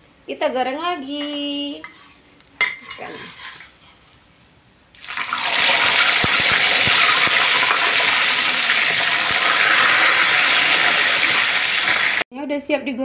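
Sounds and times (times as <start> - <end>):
fish sizzling in hot oil: 5.0 - 12.2.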